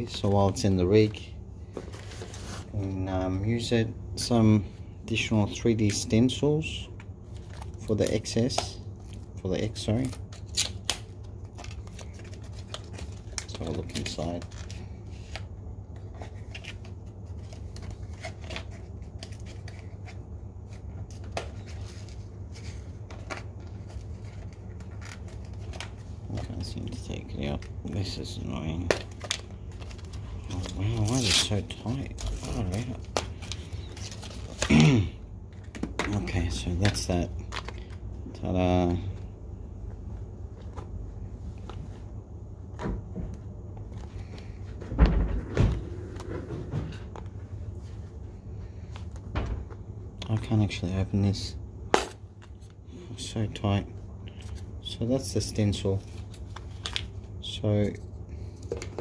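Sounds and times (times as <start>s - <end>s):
steady low hum: 0.0s - 59.0s
cardboard packaging being handled: 9.7s - 38.0s.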